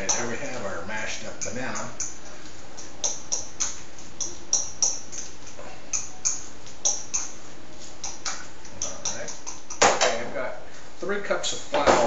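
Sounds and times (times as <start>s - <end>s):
utensil clicking on plate: 8.0s - 9.9s.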